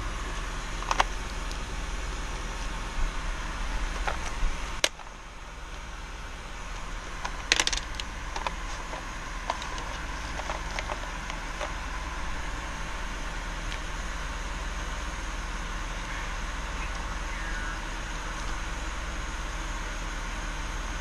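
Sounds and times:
steady background hum: 0:00.0 - 0:21.0
plastic cases clicking and clacking: 0:04.0 - 0:05.1, 0:07.2 - 0:11.8.

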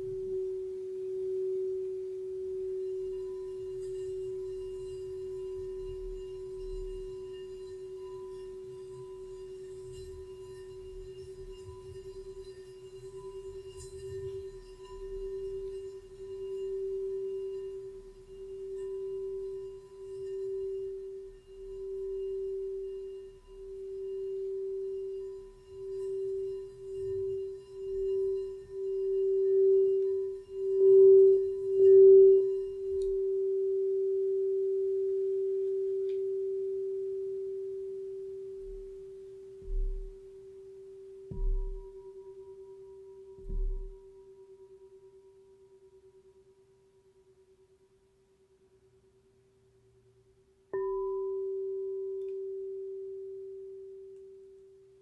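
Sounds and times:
singing bowl tone: 0:00.0 - 0:47.3, 0:50.7 - 0:55.0
soft low knocks: 0:39.6 - 0:40.4, 0:41.3 - 0:42.2, 0:43.4 - 0:44.2.

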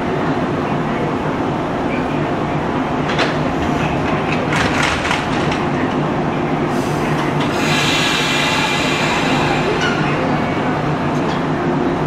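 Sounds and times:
train electrical hum: 0:00.0 - 0:12.0
train whine pulling away: 0:06.7 - 0:11.8
air hissing: 0:06.8 - 0:09.8.

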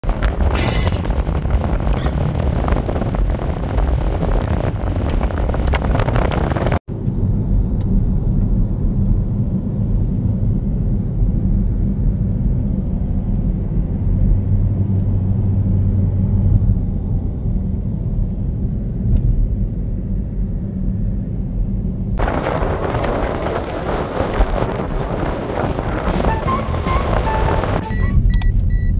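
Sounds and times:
wind buffeting microphone: 0:00.0 - 0:06.8, 0:22.2 - 0:28.9
low engine and road rumble: 0:00.0 - 0:28.9.

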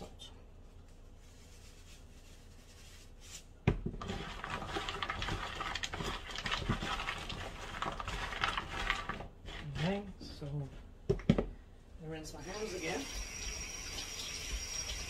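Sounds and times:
vegetables rustling in plastic bowl: 0:00.8 - 0:10.6.

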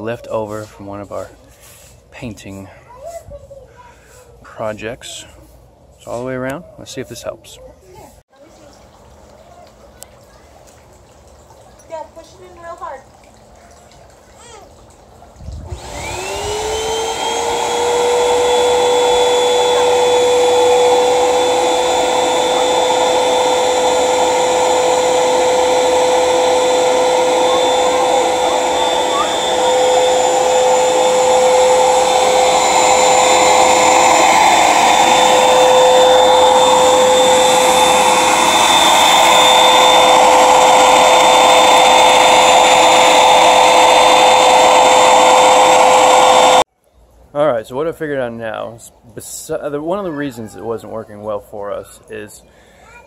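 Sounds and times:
water sucked up hose: 0:15.4 - 0:46.6
vacuum motor whining: 0:15.6 - 0:46.7.

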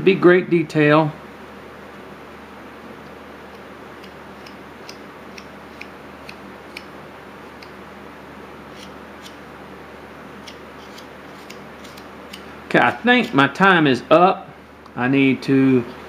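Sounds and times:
low room hum: 0:00.0 - 0:16.0
knife slicing wood chips: 0:10.4 - 0:13.4.

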